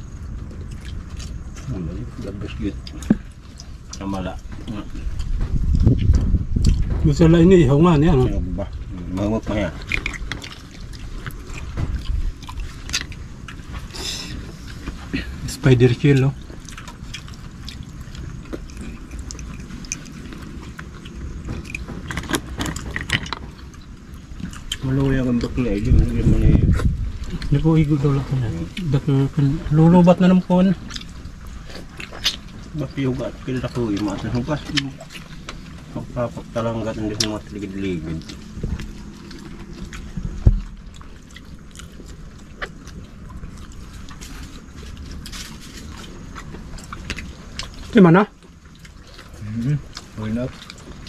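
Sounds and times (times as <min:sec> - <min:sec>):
chewing: 0:00.0 - 0:51.0
dull thump: 0:40.1 - 0:40.7.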